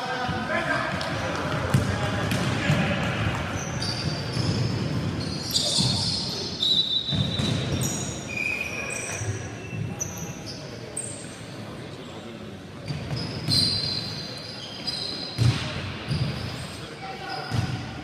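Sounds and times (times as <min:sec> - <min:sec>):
basketball bouncing: 0:01.0 - 0:05.0
sneakers squeaking: 0:01.7 - 0:18.0.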